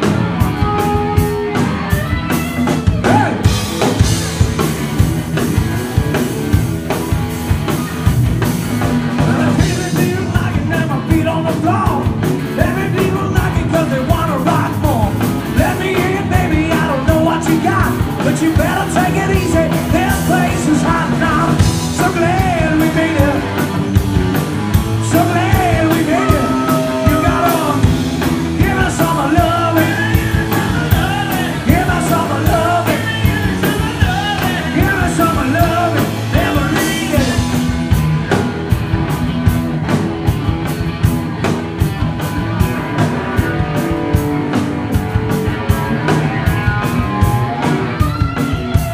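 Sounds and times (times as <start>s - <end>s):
rock band playing: 0.0s - 48.9s
person singing: 2.6s - 3.6s, 9.2s - 23.8s, 24.9s - 37.6s.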